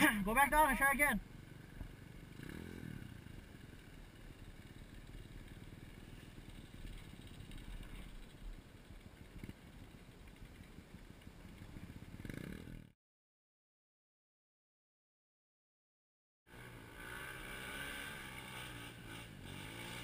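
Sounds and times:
dirt bike engine running: 0:00.0 - 0:12.9.

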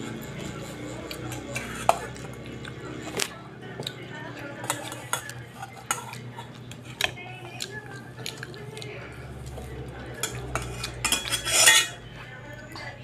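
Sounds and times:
metal fork scraping pot: 0:00.0 - 0:03.2, 0:04.6 - 0:07.6, 0:09.6 - 0:12.1.

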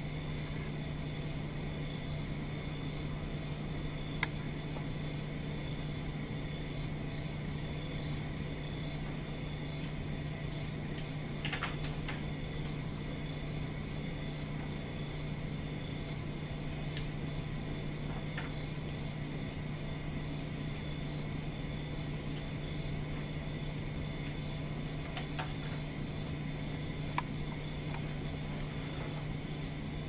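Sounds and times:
low background hum: 0:00.0 - 0:30.0.

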